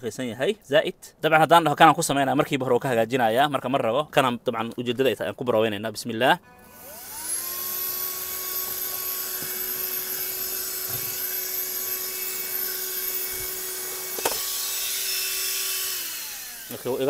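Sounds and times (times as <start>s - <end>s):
handheld vacuum cleaner whining: 6.6s - 17.0s.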